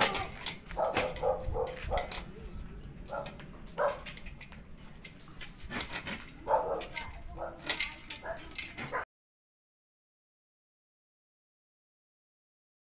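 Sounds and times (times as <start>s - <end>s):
voices: 0.0s - 5.2s, 6.0s - 9.0s
dog barking: 0.7s - 2.2s, 3.1s - 4.1s, 6.4s - 9.0s.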